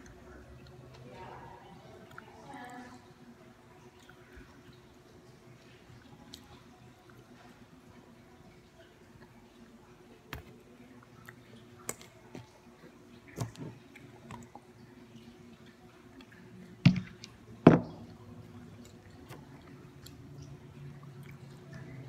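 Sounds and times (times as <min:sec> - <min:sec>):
chewing: 0:08.8 - 0:17.4, 0:18.4 - 0:22.0.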